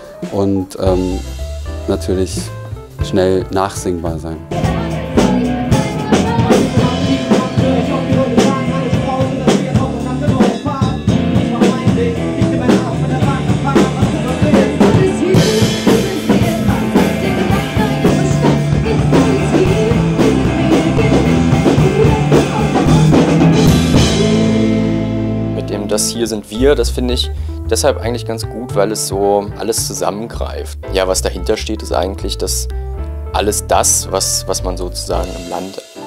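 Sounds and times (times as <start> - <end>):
drum kit with cymbals: 0.0 - 30.1
electric guitar: 4.5 - 25.8
man singing into a microphone: 6.6 - 17.6, 19.2 - 24.8.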